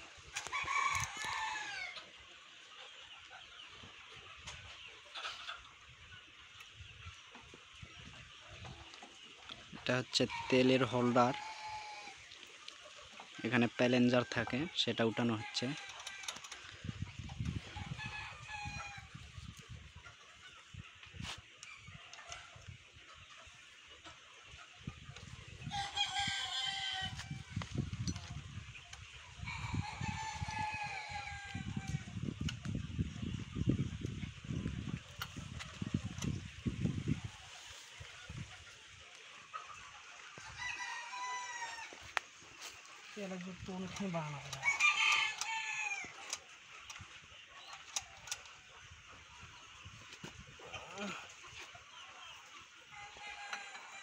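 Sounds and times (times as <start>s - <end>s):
rooster crowing: 0.4s - 2.0s, 10.4s - 12.2s, 25.7s - 27.2s, 40.5s - 42.2s, 44.3s - 46.2s.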